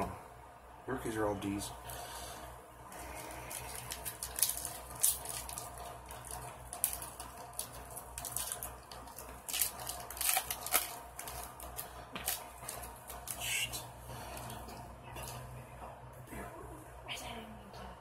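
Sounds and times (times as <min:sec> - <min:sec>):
foil wrapper crinkling: 0:03.0 - 0:15.4.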